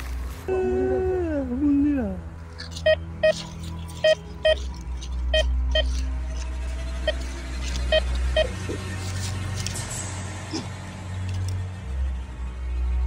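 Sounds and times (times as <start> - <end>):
metal detector beeping: 2.8 - 4.7, 5.3 - 6.0, 7.0 - 8.7.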